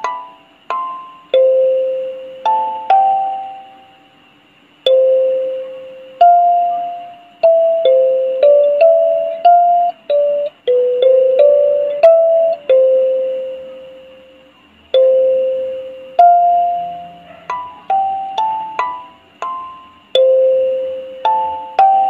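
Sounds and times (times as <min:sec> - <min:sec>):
kalimba melody: 0:04.9 - 0:13.8, 0:15.0 - 0:22.0.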